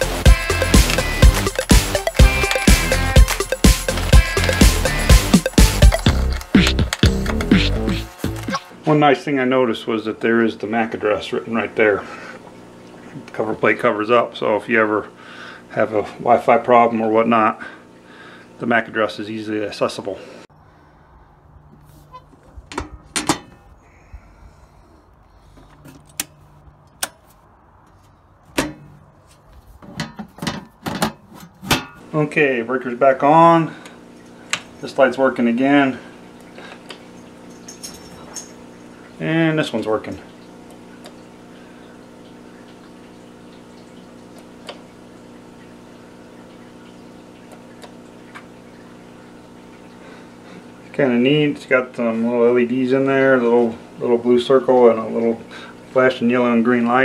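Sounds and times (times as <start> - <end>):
circuit breaker snapping: 0.5 - 8.7
metal panel door opening and shutting: 22.7 - 23.6, 28.5 - 29.0, 29.9 - 32.0.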